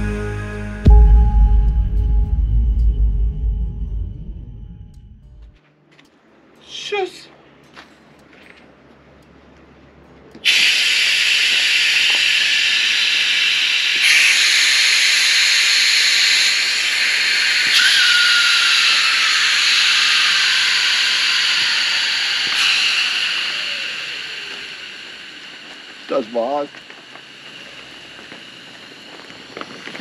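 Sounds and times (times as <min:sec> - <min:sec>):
air hissing from valves: 0:10.4 - 0:30.0
faint falling whistle: 0:10.4 - 0:30.0.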